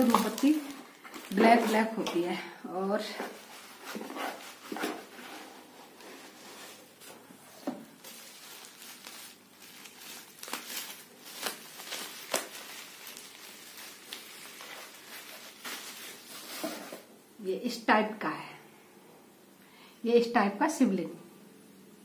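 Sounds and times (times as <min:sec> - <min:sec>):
plastic packaging crinkling: 0:00.0 - 0:02.2, 0:06.0 - 0:17.1.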